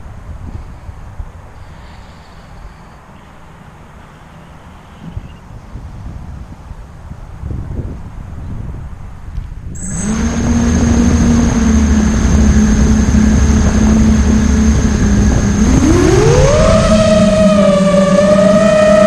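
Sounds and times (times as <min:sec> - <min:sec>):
quadcopter motors whining: 0:09.8 - 0:19.0.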